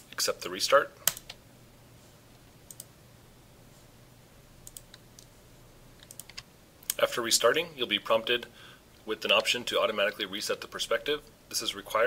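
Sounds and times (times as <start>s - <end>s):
low steady hum: 0.0s - 12.0s
faint clicks: 4.6s - 5.3s, 6.0s - 7.0s.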